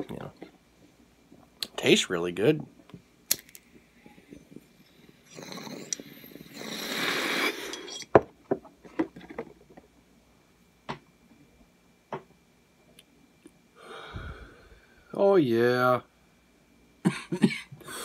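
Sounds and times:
glass clinking: 7.5s - 8.2s.

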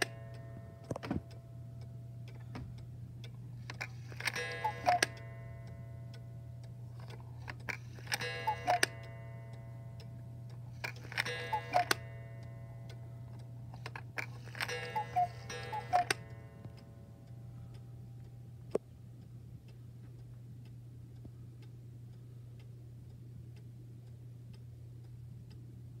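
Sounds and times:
cuckoo clock calling: 0.0s - 0.6s, 3.7s - 6.2s, 7.1s - 9.7s, 10.8s - 13.0s, 13.8s - 16.6s
clock mechanism click: 0.0s - 1.4s, 2.2s - 17.8s
clock ticking: 0.0s - 21.8s.

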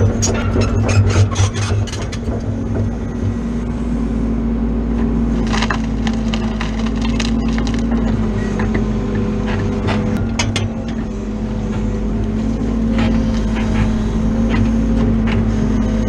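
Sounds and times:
excavator engine humming: 0.0s - 16.0s
wood cracking and splintering: 5.3s - 8.8s.

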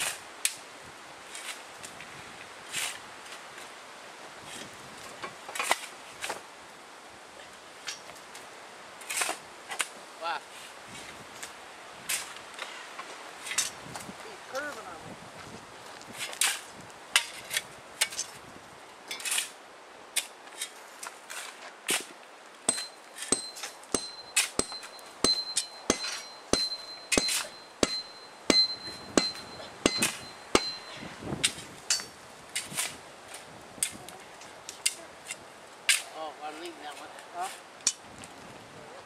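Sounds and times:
high metallic ringing tone: 22.7s - 31.1s
hammer striking steel rail: 22.7s - 32.1s.

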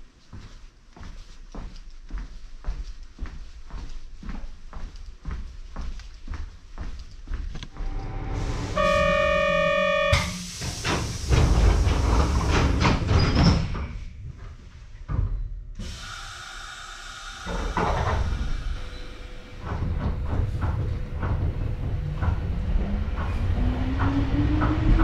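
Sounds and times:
train door buzzer tone: 7.8s - 10.6s
pneumatic door air hiss: 10.1s - 13.9s, 15.8s - 19.5s.

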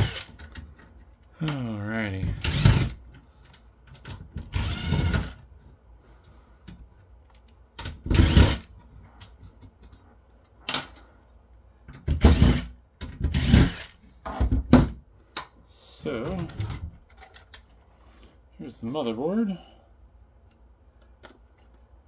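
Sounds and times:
cordless drill spinning: 0.0s - 0.4s, 2.4s - 2.9s, 4.5s - 5.4s, 8.1s - 8.7s, 13.3s - 13.9s.

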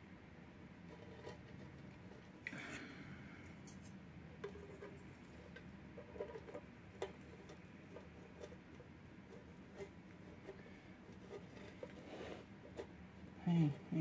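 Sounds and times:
plastic container scrape: 11.2s - 12.8s.

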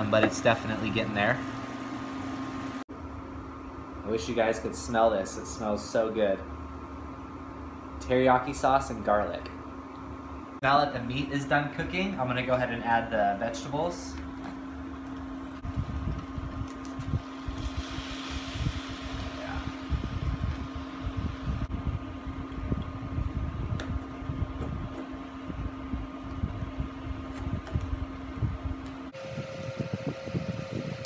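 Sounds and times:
induction cooktop fan humming: 0.0s - 31.0s
vegetables sizzling: 17.2s - 21.6s.

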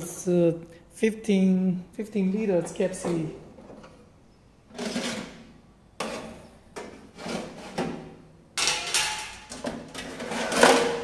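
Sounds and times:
metal rack scraping and knocking: 4.7s - 11.0s.

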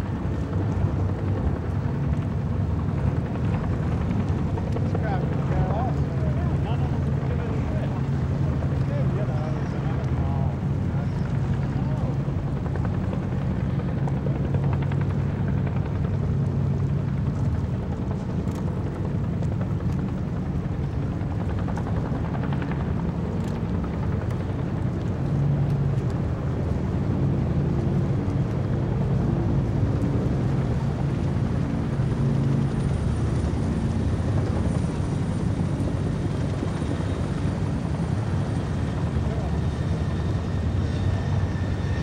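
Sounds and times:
motorboat engines droning: 25.2s - 42.0s.

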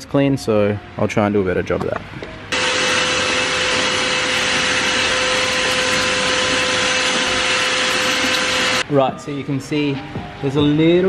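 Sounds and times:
vacuum cleaner running: 2.5s - 8.8s.

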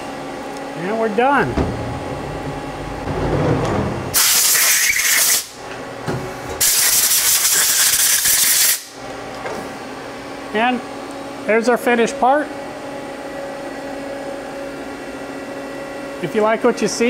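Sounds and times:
compressed air blasts: 4.1s - 5.6s, 6.6s - 8.9s.

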